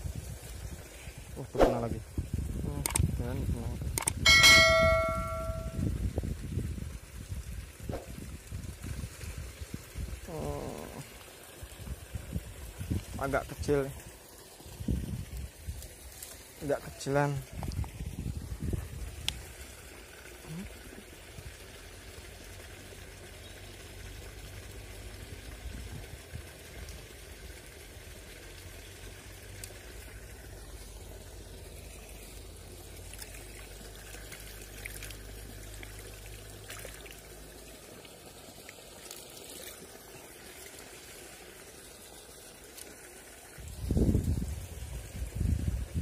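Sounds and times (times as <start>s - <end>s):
water pouring over small fall: 0.0s - 46.0s
river water flowing: 4.2s - 5.8s, 26.5s - 43.8s.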